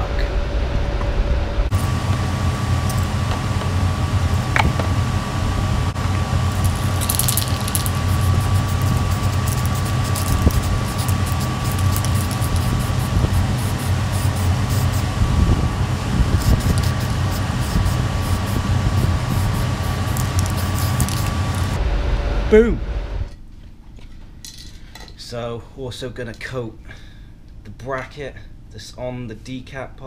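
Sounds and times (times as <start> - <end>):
faint constant whine: 0.0 - 30.0
low mechanical hum: 0.0 - 30.0
aerosol spray hissing: 6.8 - 15.1, 16.3 - 21.8.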